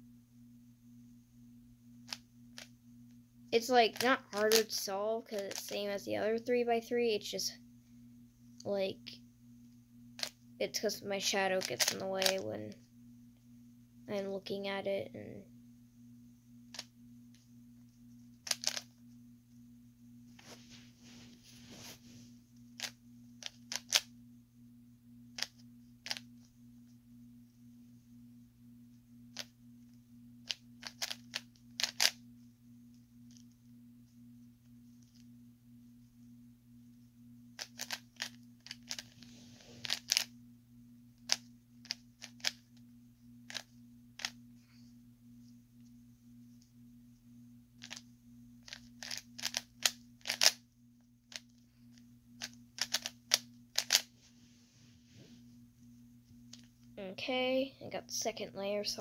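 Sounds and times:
low hum: 0.0 - 59.0
puzzle cube plastic clicks: 3.8 - 5.8, 11.5 - 12.4, 18.4 - 18.9, 22.8 - 24.1, 25.4 - 26.3, 30.4 - 32.2, 37.6 - 39.2, 39.8 - 40.3, 41.3 - 42.6, 43.5 - 44.4, 47.8 - 50.6, 51.3 - 54.1.

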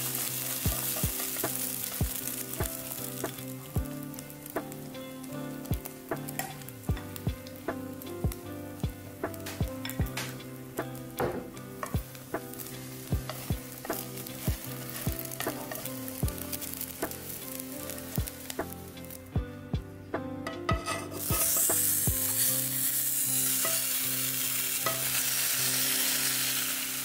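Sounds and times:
egg sizzling in frying pan: 0.0 - 19.2, 20.7 - 27.0
background music with steady beat: 0.0 - 25.8
spatula scraping pan: 12.8 - 16.0, 20.5 - 22.5.

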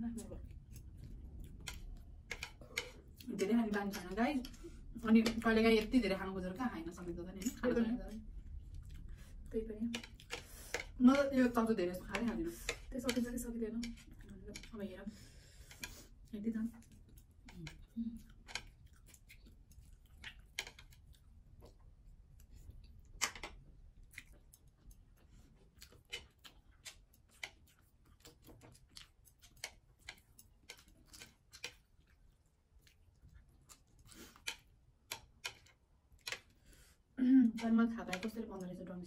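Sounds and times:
chewing: 0.0 - 39.0
chopsticks tapping ceramic plates: 1.6 - 6.0, 9.8 - 14.9, 34.4 - 36.5, 37.4 - 38.7.

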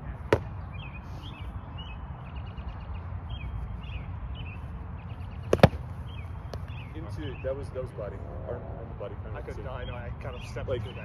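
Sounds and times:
birds chirping: 0.0 - 8.3, 9.2 - 11.0.

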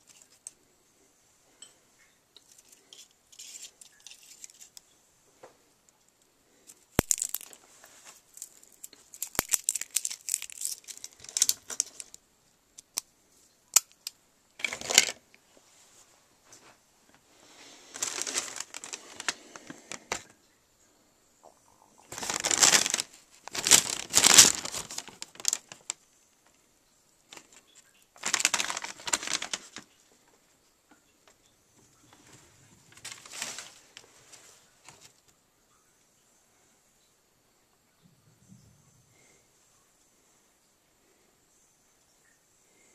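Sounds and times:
paper bag crinkling: 2.5 - 4.8, 6.7 - 12.2, 14.6 - 15.2, 17.6 - 20.3, 22.1 - 26.0, 27.3 - 29.9, 32.8 - 35.2.

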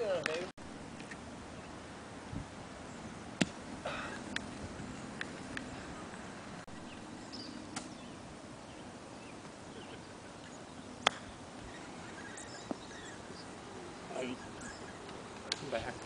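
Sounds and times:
faint outdoor background: 0.0 - 16.0
golf club striking ball: 3.4 - 3.6, 7.7 - 8.0, 11.0 - 11.4.

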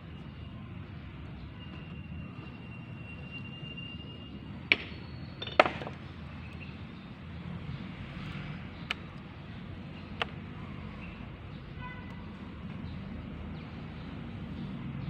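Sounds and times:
stone pieces clacking: 5.4 - 6.0.

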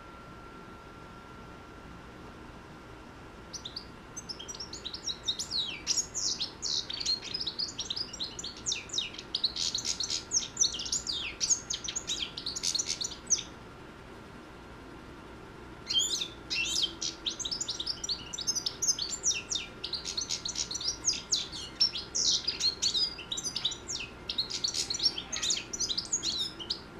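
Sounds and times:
goldfinch singing: 3.5 - 13.6, 15.8 - 26.9.

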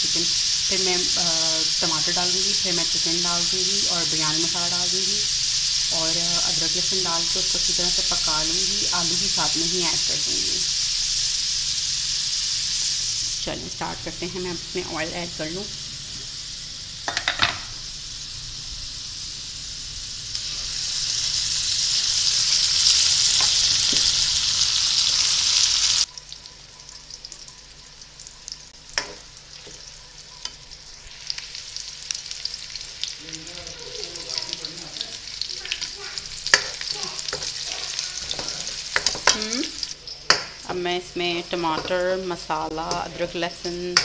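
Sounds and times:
onions sizzling in hot oil: 0.0 - 44.0
spoon scraping a pan: 35.8 - 40.6.

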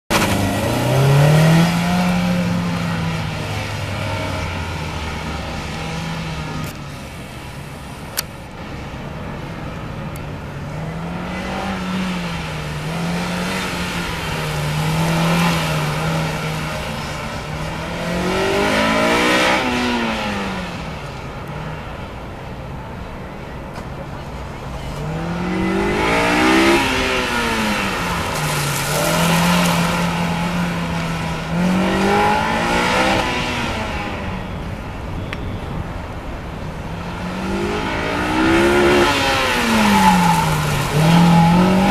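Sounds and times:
car engine accelerating hard: 0.1 - 7.1, 24.8 - 34.5, 37.0 - 41.9.

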